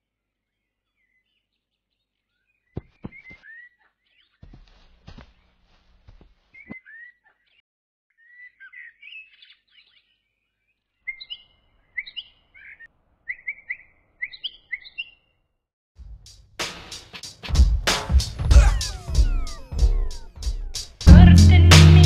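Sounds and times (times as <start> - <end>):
small birds chirping: 0.6 - 4.7, 6.5 - 15.4.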